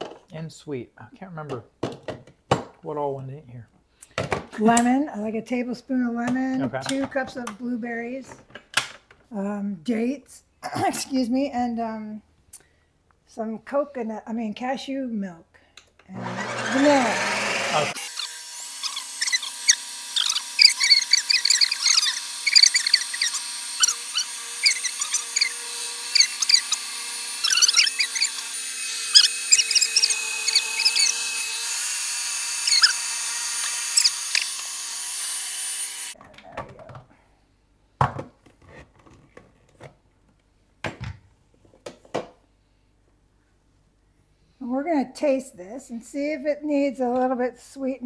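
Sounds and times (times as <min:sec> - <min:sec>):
ice-cream maker blade humming: 0:16.2 - 0:36.2.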